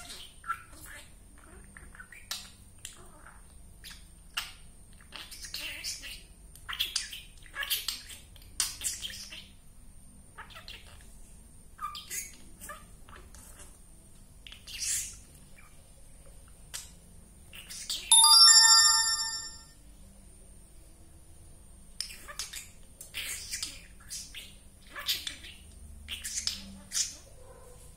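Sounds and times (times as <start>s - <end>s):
ringtone-like chime: 18.1s - 19.7s.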